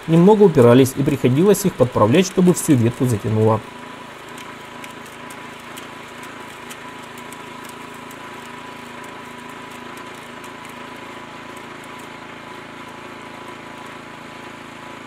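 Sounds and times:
branch cracking in shredder: 0:00.0 - 0:15.0
small petrol engine running: 0:00.0 - 0:15.0.

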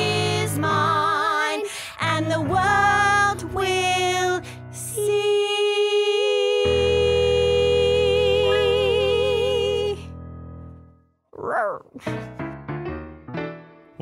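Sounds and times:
two voices singing in harmony: 0:00.0 - 0:10.1.

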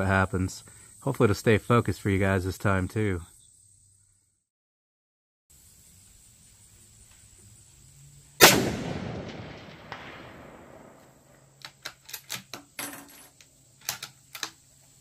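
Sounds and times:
rifle shot with echo: 0:08.4 - 0:11.4.

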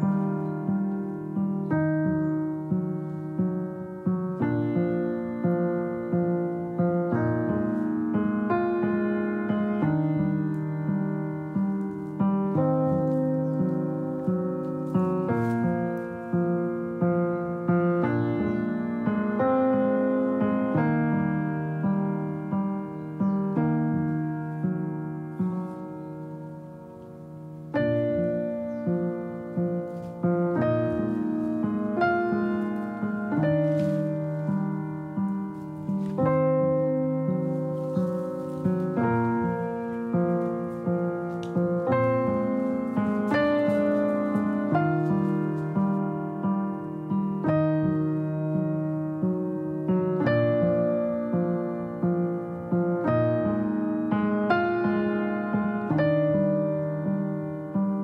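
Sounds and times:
electric piano music: 0:00.0 - 0:58.0.

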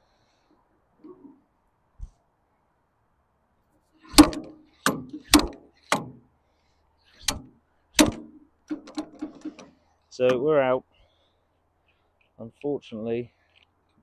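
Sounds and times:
slide hammer metal clanks: 0:07.2 - 0:10.4.

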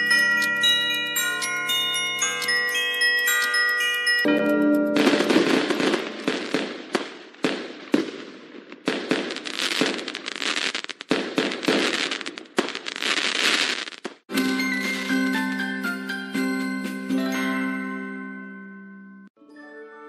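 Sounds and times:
fireworks crackling and banging: 0:00.0 - 0:15.9.

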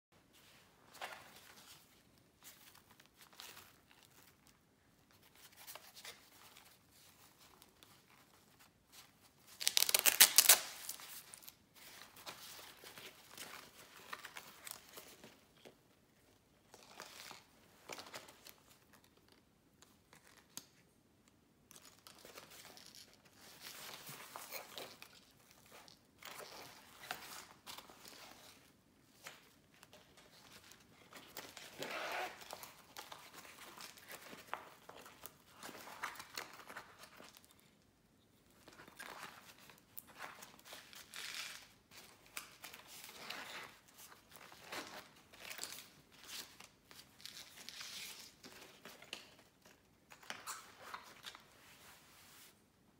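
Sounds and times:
fabric pencil case rustling: 0:30.2 - 0:37.5.

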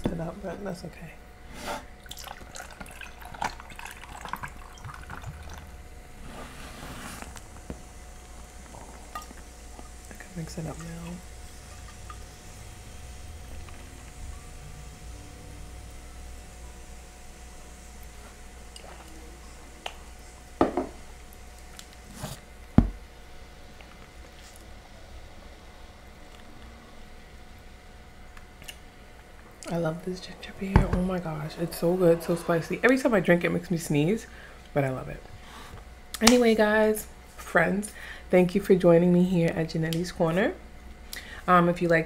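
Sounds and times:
drink pouring into glass: 0:02.0 - 0:05.8.

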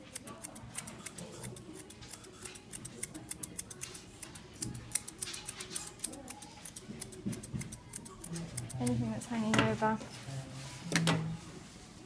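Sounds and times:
scissors snipping hair: 0:00.0 - 0:09.0.

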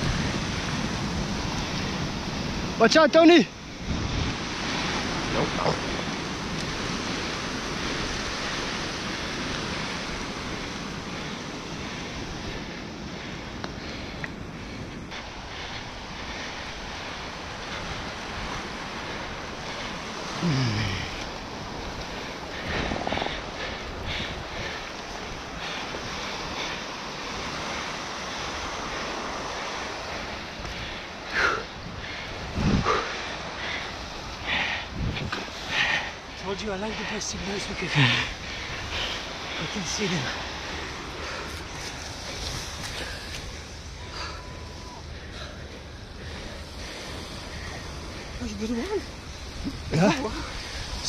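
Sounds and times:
wind on microphone: 0:00.0 - 0:02.8, 0:03.6 - 0:36.4, 0:37.0 - 0:51.0
sea surf rushing: 0:00.0 - 0:51.0.

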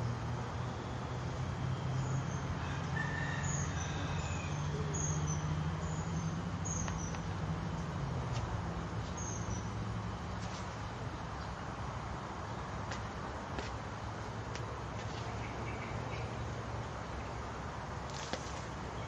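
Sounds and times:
low mechanical drone: 0:00.0 - 0:19.0
small birds chirping: 0:03.4 - 0:09.8, 0:15.0 - 0:17.5.

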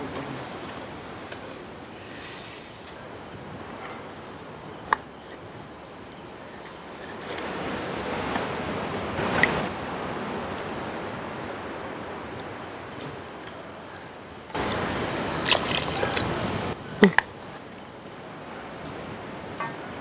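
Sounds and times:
soup scooping and pouring: 0:14.7 - 0:16.8.

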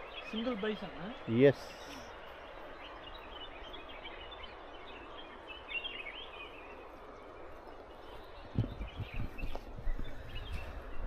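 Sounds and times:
soft hiss: 0:00.0 - 0:08.7.

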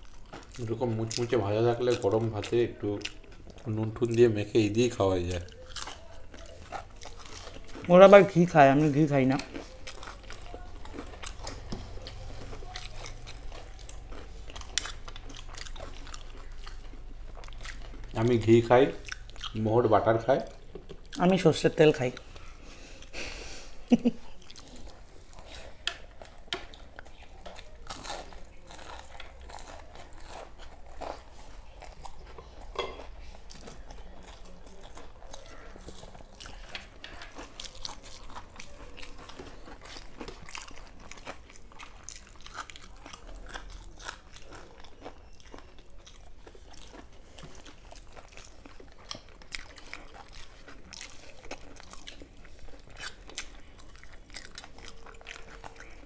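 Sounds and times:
crunchy chewing and biting: 0:00.0 - 0:56.0.

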